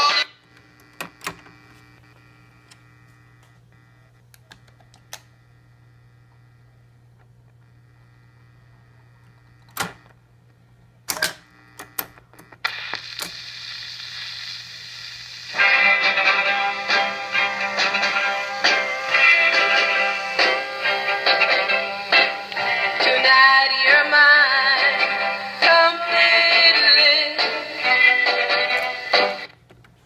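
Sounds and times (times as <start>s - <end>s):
record changer humming: 0.0s - 30.0s
stylus hiss: 12.8s - 15.8s.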